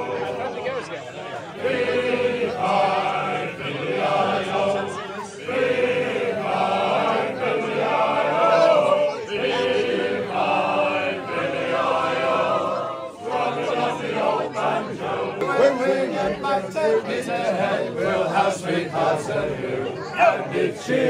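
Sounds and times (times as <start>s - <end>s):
male chorus singing: 0.0s - 21.0s.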